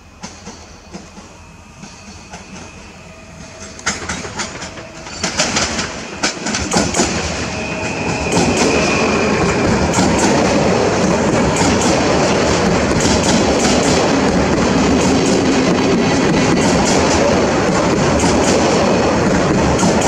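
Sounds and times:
thin high whine: 0.0s - 15.0s
electric train running past: 0.0s - 20.0s.

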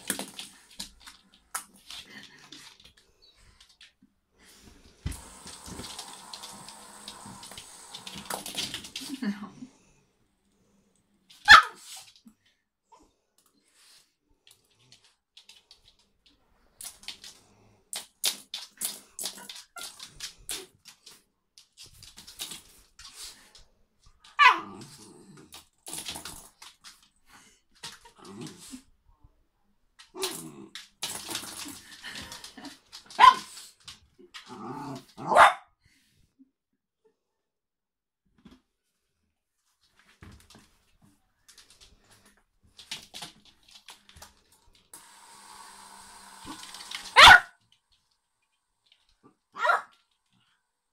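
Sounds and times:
claws clicking on floor: 0.0s - 4.0s, 14.4s - 24.4s, 30.0s - 35.2s, 40.0s - 45.0s
dog barking: 11.5s - 11.8s, 33.2s - 33.5s, 35.2s - 35.7s, 47.1s - 47.6s, 49.6s - 49.9s
fidget spinner clacking on floor: 30.2s - 35.0s
small dog growling: 34.4s - 35.3s.

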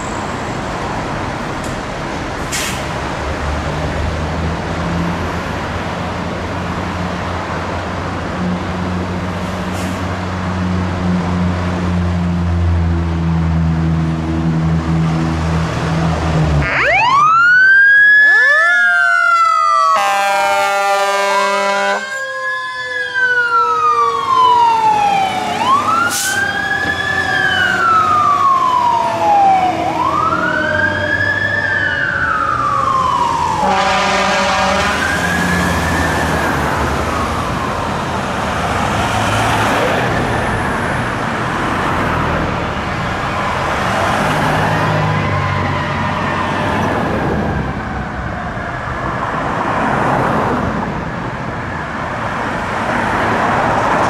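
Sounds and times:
fire engine diesel engine: 0.0s - 54.0s
wailing siren: 16.4s - 50.7s
air horn blasts: 20.0s - 22.2s, 33.6s - 35.1s.

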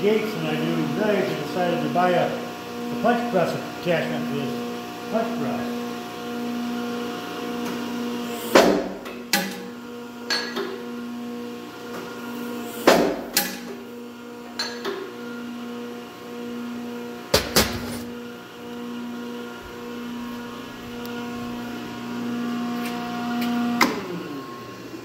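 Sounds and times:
punch press electric hum: 7.6s - 10.9s, 11.8s - 15.2s, 17.2s - 21.8s.

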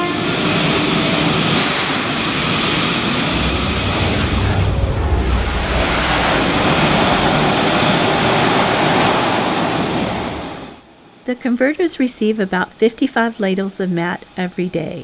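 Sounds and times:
loud industrial roar: 0.0s - 10.8s
deep rumble: 2.8s - 9.4s.

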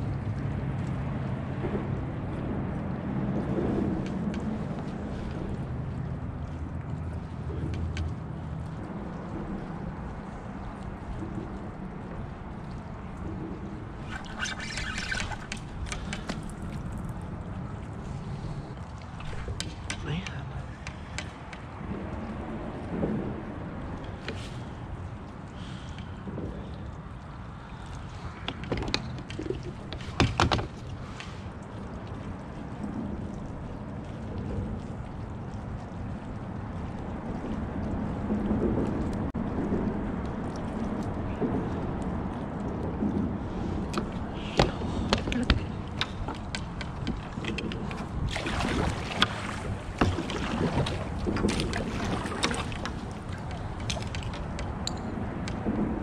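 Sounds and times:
water lapping against kayak hull: 0.0s - 56.0s
wind buffeting microphone: 0.0s - 56.0s
small clicks and knocks: 51.2s - 55.7s.

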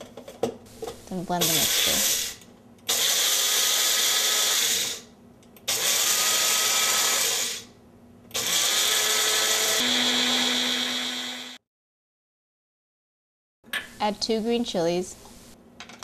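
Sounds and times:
blender grinding dry seeds: 1.4s - 5.1s, 5.7s - 7.7s, 8.4s - 11.6s.

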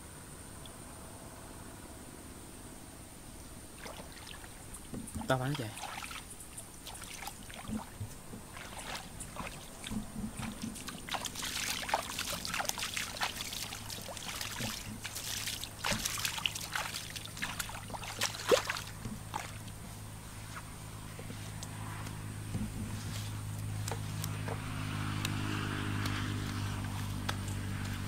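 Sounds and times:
hands splashing in muddy water: 5.5s - 19.8s.

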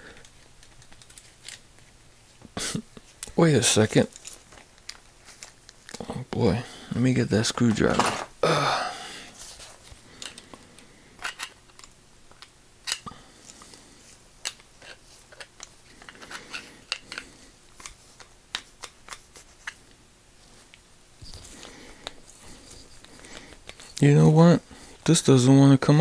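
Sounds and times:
handling rustle: 3.8s - 6.0s, 7.4s - 8.3s, 20.4s - 25.4s
screwdriver clicking and scraping metal: 14.4s - 19.8s, 21.2s - 24.0s.

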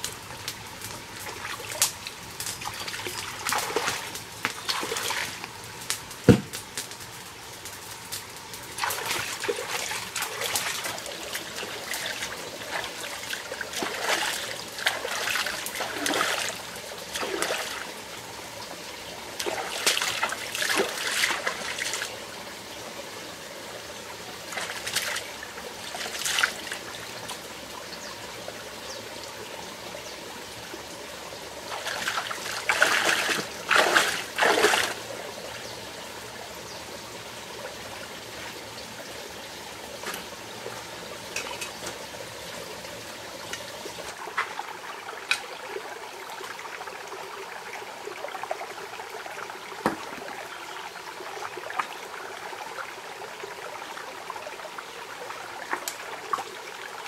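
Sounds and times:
stream trickling: 0.0s - 57.0s
hands splashing water: 8.8s - 17.8s, 31.7s - 35.0s.

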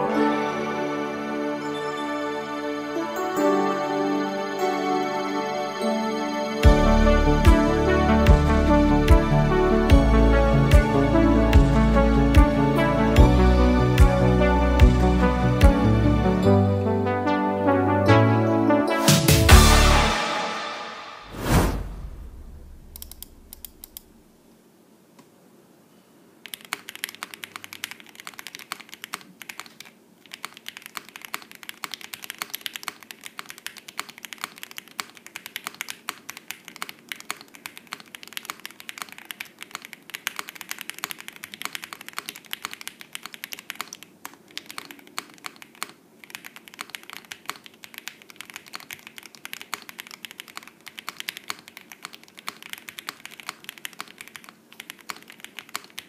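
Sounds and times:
mechanical keyboard typing: 22.9s - 24.1s, 26.4s - 56.0s.

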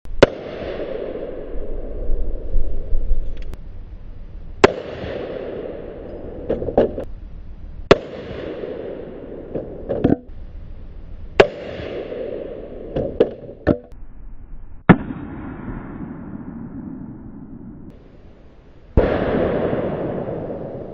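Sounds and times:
gunshots: 0.1s - 1.6s, 4.6s - 7.1s, 7.9s - 9.9s, 11.4s - 13.4s, 14.9s - 16.8s, 19.0s - 20.9s.

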